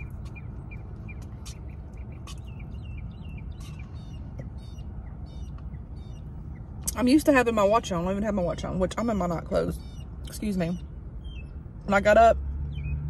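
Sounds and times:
steady low rumble: 0:00.0 - 0:12.8
small birds chirping: 0:00.0 - 0:13.0.

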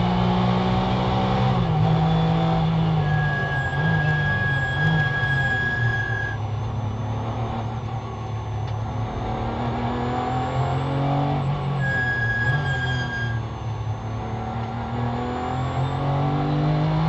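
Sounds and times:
car engine revving: 0:00.0 - 0:17.0
steady high-pitched tone: 0:02.8 - 0:16.0.

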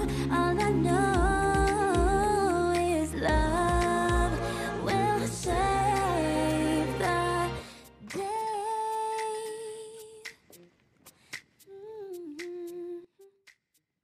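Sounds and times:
woman humming: 0:11.7 - 0:13.4.

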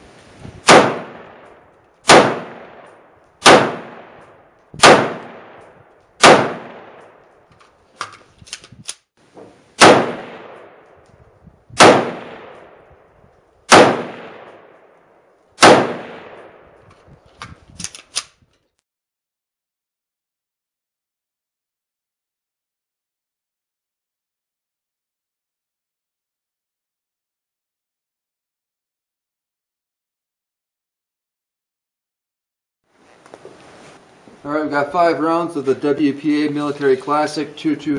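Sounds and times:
rifle shots echoing: 0:00.6 - 0:07.3, 0:09.8 - 0:11.0, 0:11.8 - 0:12.9, 0:13.7 - 0:16.8.

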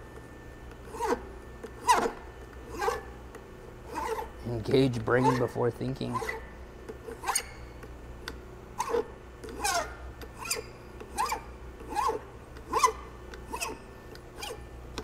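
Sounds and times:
file rasping on metal: 0:00.9 - 0:01.2, 0:02.7 - 0:03.1, 0:03.9 - 0:04.3, 0:05.1 - 0:06.5, 0:07.1 - 0:07.5, 0:08.8 - 0:10.6, 0:11.2 - 0:13.8, 0:14.4 - 0:14.6
file squealing on metal: 0:00.9 - 0:03.1, 0:03.9 - 0:06.5, 0:07.1 - 0:07.7, 0:08.8 - 0:14.7.

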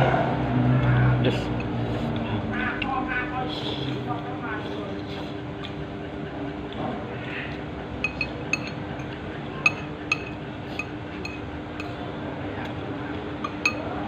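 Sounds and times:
steady low hum: 0:00.0 - 0:14.0
spoon and fork clinking on bowl: 0:08.0 - 0:12.0, 0:13.4 - 0:13.9.

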